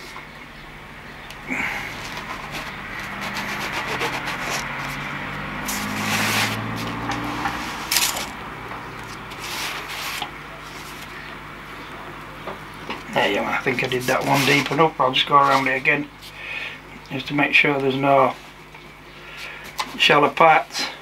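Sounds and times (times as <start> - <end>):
divider point scraping foam board: 1.5 - 8.4, 9.0 - 11.2, 14.0 - 14.8.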